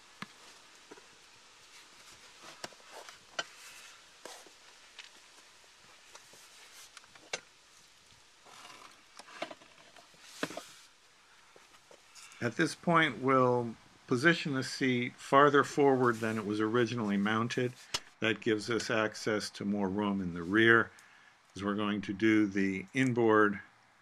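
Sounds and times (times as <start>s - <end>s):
soft rustling: 0.0s - 13.1s, 13.7s - 19.2s.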